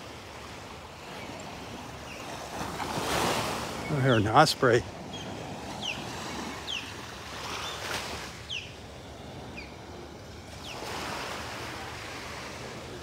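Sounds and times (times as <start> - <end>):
gentle surf: 0.0 - 13.0
osprey calling: 3.6 - 9.8.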